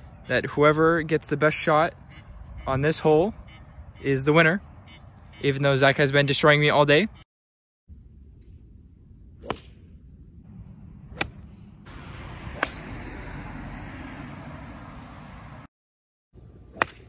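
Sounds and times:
golf club striking ball: 0:09.4 - 0:09.9, 0:11.1 - 0:11.6, 0:12.5 - 0:13.0, 0:16.7 - 0:17.0.

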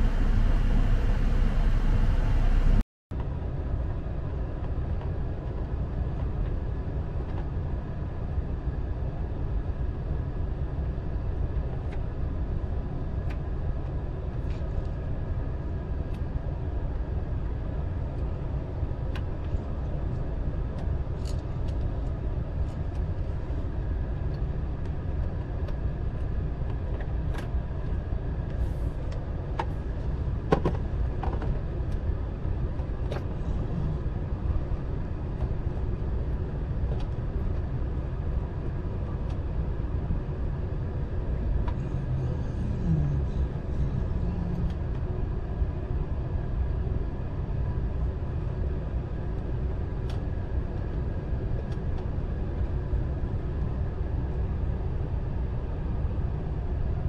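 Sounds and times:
car engine rumble: 0:00.0 - 0:08.7.

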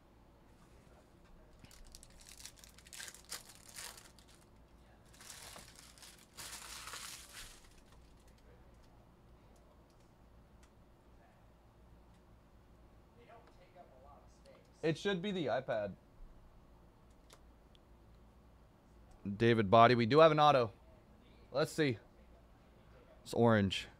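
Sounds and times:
faint room noise: 0:00.0 - 0:23.9
foil wrapper crinkling and tearing: 0:01.6 - 0:08.4.

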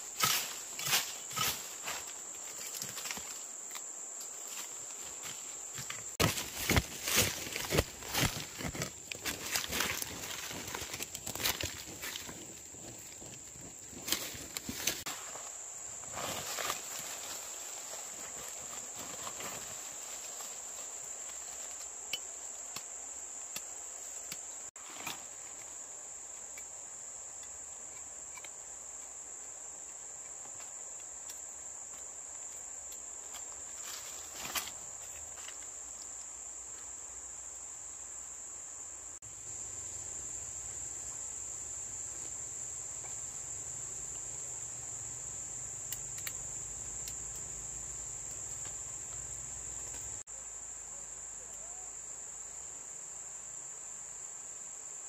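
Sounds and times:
hands rustling dry leaves and soil: 0:00.0 - 0:22.0
insects chorus: 0:00.0 - 0:55.0.

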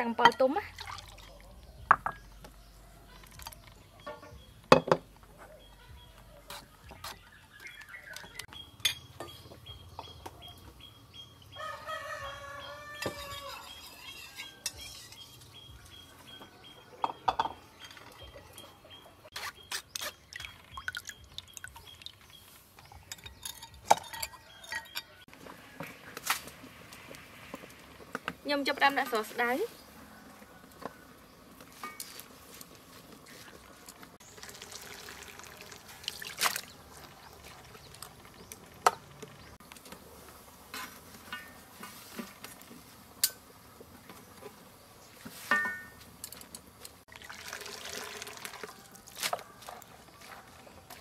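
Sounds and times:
rooster crowing: 0:11.6 - 0:14.6, 0:30.0 - 0:30.9
metal spoon scraping bowls: 0:12.6 - 0:15.6, 0:23.0 - 0:25.3.

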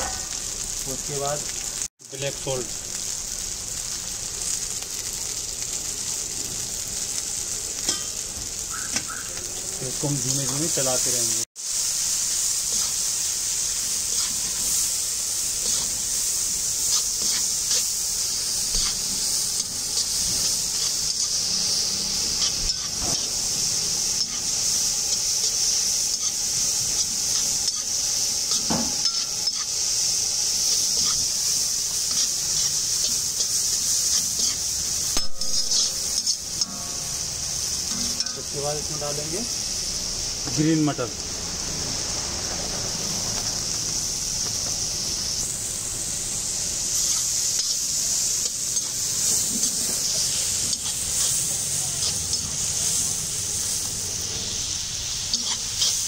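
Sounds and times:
vegetables sizzling in oil: 0:00.0 - 0:56.0
spatula scraping a pan: 0:12.7 - 0:13.1, 0:15.6 - 0:16.1, 0:16.8 - 0:17.9, 0:30.6 - 0:36.8, 0:55.3 - 0:56.0.

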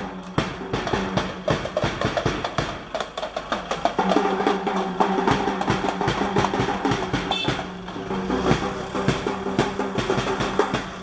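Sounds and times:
rapid live drumming: 0:00.0 - 0:11.0.

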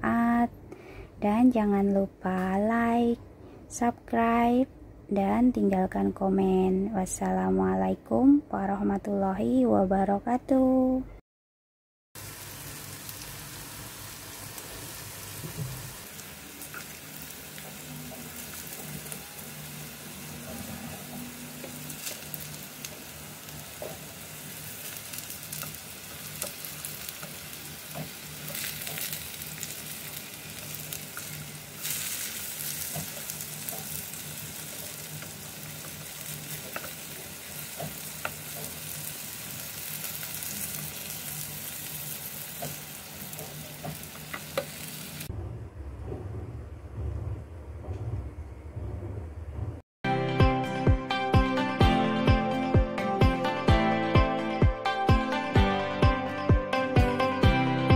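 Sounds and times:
crackles of frying: 0:12.2 - 0:45.3
food sizzling in hot oil: 0:12.2 - 0:45.3
spatula scraping and tapping: 0:36.6 - 0:37.0.

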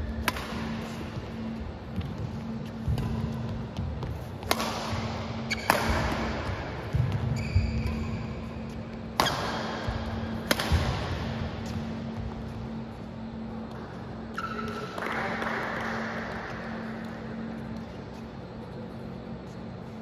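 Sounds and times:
steady low hum: 0:00.0 - 0:20.0
badminton rackets hitting shuttlecock: 0:00.1 - 0:01.6, 0:02.4 - 0:03.6, 0:04.4 - 0:12.9
shoe squeak on court: 0:05.4 - 0:05.8, 0:07.2 - 0:09.5, 0:14.4 - 0:14.9.

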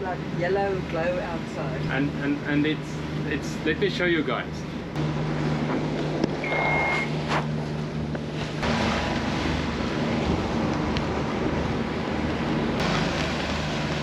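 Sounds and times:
boat engine humming: 0:00.0 - 0:14.0
short high beep: 0:06.4 - 0:07.1.

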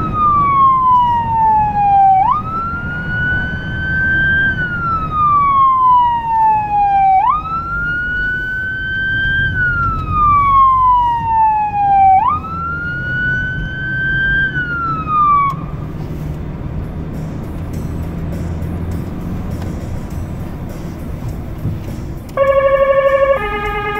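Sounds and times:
emergency siren wailing: 0:00.0 - 0:15.9, 0:22.4 - 0:23.9
car engine and road noise: 0:00.0 - 0:23.9.

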